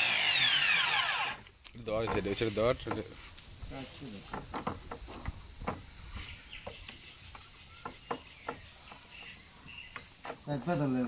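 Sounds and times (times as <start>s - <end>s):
crickets chirping: 0.0s - 11.0s
light knocks and taps: 2.8s - 3.1s.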